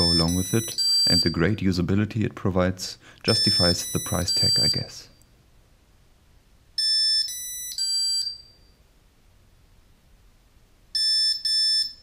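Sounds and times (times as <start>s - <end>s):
short electronic beeps: 0.0s - 1.3s, 3.3s - 5.2s.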